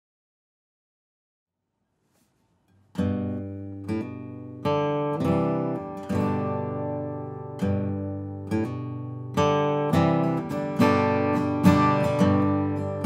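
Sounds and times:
acoustic guitar strumming chords: 2.9 - 13.0.

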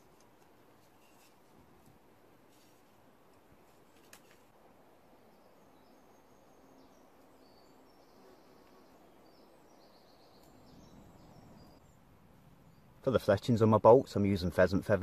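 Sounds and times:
distant high bird chirps: 5.2 - 13.1.

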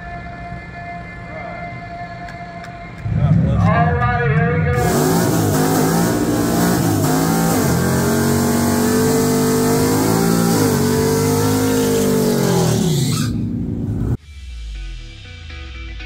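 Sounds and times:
pickup engine revving: 4.7 - 14.2
tires spinning and hissing: 4.8 - 14.2.

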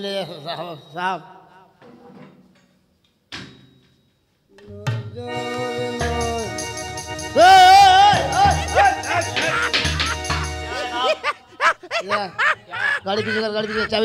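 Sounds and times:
low bass: 5.2 - 10.7
background music with chords: 5.2 - 11.2
wavering melody with vibrato: 5.2 - 11.3.

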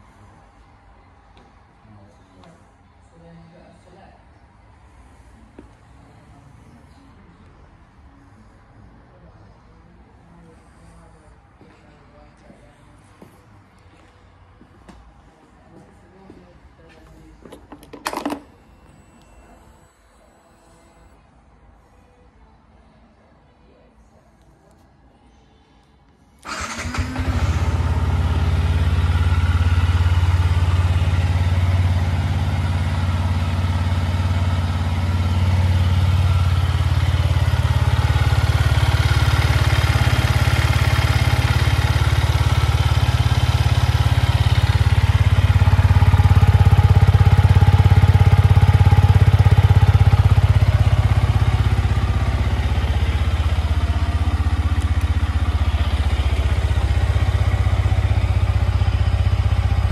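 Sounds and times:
motorcycle engine starting and idling: 26.4 - 59.9.

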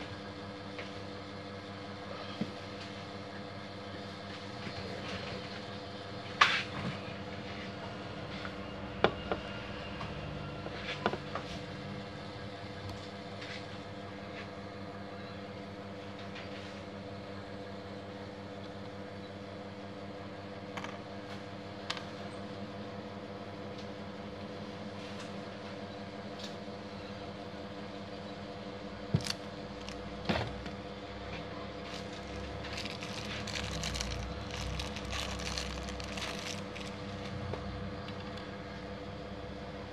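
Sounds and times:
steady machine hum: 0.0 - 39.9
plastic bag crinkling: 29.2 - 30.1, 31.8 - 37.4.

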